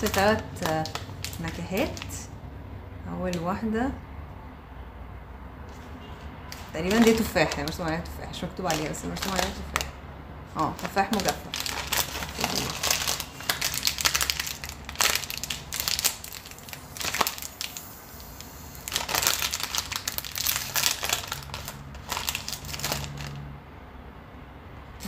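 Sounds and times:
plastic snack pouch crinkling: 0:00.0 - 0:02.2, 0:06.5 - 0:10.0, 0:10.6 - 0:23.4.

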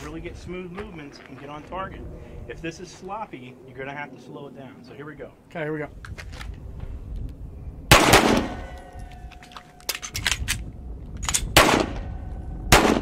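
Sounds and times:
pistol shots: 0:07.9 - 0:08.9, 0:11.2 - 0:13.0
magazine reload clicks: 0:09.2 - 0:11.6.

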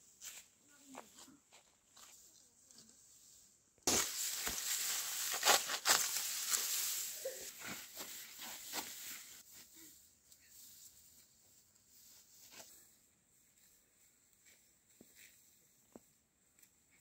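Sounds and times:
dry grass rustling and crackling: 0:03.8 - 0:09.6
twigs snapping: 0:03.9 - 0:06.7.

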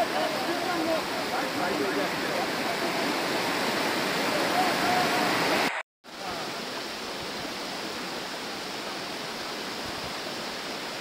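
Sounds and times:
floodwater rushing in stream: 0:00.0 - 0:11.0.

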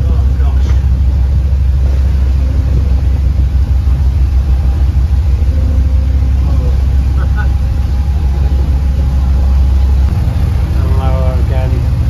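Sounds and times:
diesel engine rumbling in tunnel: 0:00.0 - 0:12.0.

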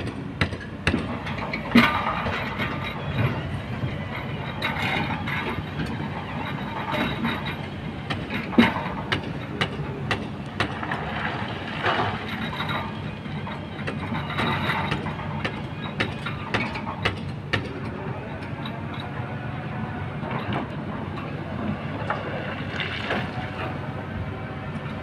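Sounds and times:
excavator diesel engine running: 0:00.0 - 0:25.0
rocks clacking against steel bucket: 0:00.4 - 0:17.8.

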